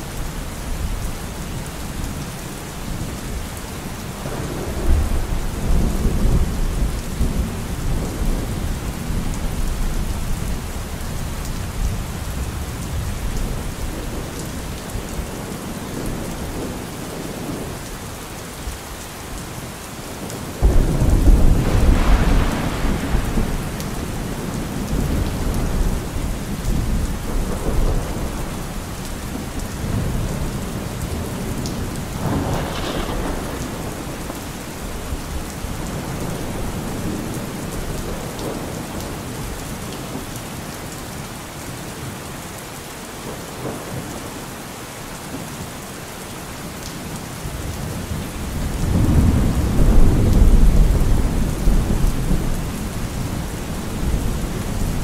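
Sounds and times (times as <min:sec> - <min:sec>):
steady rain: 0:00.0 - 0:55.0
rolling thunder: 0:20.2 - 0:39.1, 0:47.8 - 0:55.0
thunder crack: 0:20.6 - 0:24.3, 0:32.2 - 0:34.1.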